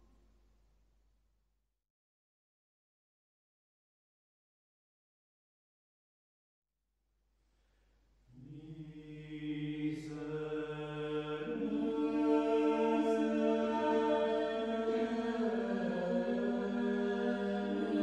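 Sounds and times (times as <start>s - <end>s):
mixed choir singing a cappella: 8.4s - 18.0s.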